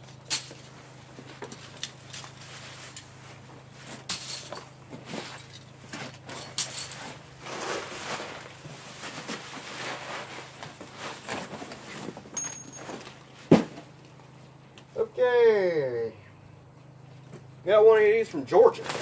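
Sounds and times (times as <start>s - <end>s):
plastic bags rustling and crinkling: 0.5s - 13.9s, 18.7s - 19.0s
thump: 13.5s - 13.8s.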